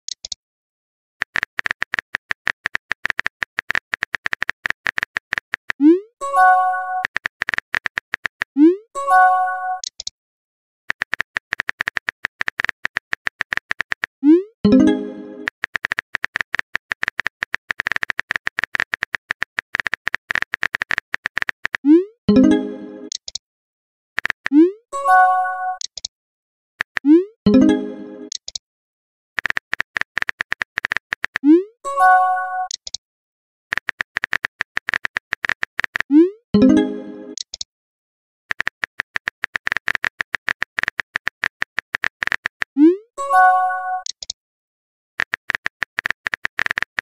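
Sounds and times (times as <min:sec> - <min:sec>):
phone keyboard typing clicks: 0:00.1 - 0:00.4, 0:01.2 - 0:05.8, 0:06.4 - 0:08.6, 0:10.9 - 0:14.1, 0:14.7 - 0:23.4, 0:24.2 - 0:24.6, 0:25.8 - 0:26.1, 0:26.8 - 0:28.6, 0:29.4 - 0:31.5, 0:32.6 - 0:33.0, 0:33.7 - 0:37.7, 0:38.5 - 0:42.8, 0:43.9 - 0:44.4, 0:45.2 - 0:47.0.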